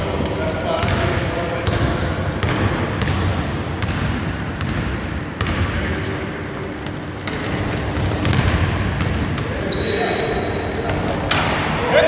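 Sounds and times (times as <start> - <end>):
basketball bouncing on wooden floor: 0.2 - 5.8, 7.1 - 9.6
high shoe squeaks: 7.0 - 11.1.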